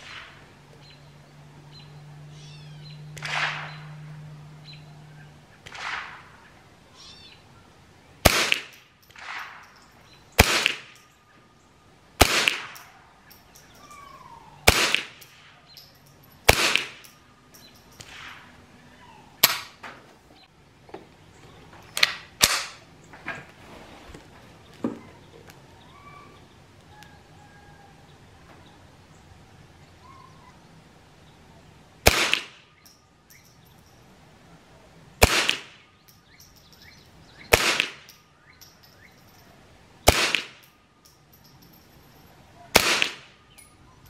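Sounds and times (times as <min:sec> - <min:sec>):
rifle shots: 0:03.2 - 0:03.9, 0:05.6 - 0:06.4, 0:08.2 - 0:09.7, 0:10.4 - 0:11.0, 0:12.2 - 0:13.0, 0:14.6 - 0:15.6, 0:16.4 - 0:17.1, 0:32.0 - 0:32.6, 0:35.2 - 0:35.8, 0:37.5 - 0:38.1, 0:40.0 - 0:40.7, 0:42.7 - 0:43.3.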